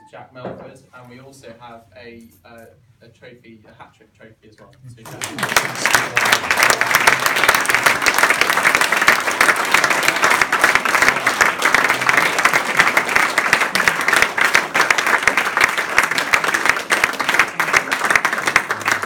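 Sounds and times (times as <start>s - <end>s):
audience applauding: 5.0s - 19.0s.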